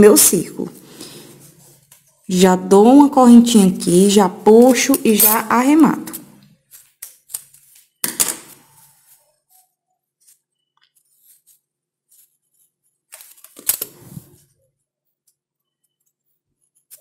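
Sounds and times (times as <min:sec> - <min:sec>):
crochet hook and yarn rustling: 0:04.4 - 0:17.0.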